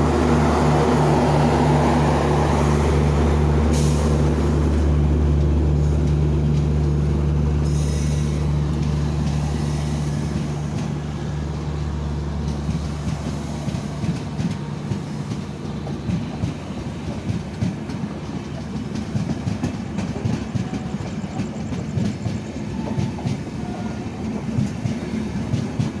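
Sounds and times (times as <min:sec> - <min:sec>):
locomotive low drone: 0:00.0 - 0:24.7
train wheels clattering over rail joints: 0:12.3 - 0:26.0.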